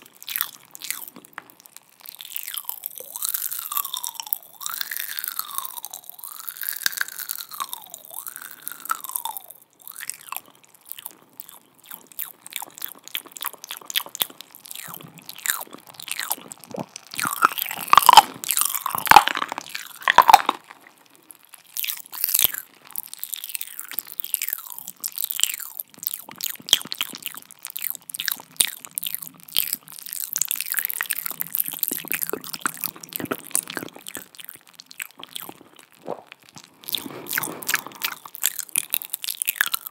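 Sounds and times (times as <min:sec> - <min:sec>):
wet mouth clicks and smacks: 0:00.0 - 0:39.9
sliding-pitch mouth sounds: 0:01.8 - 0:21.2, 0:21.8 - 0:39.9.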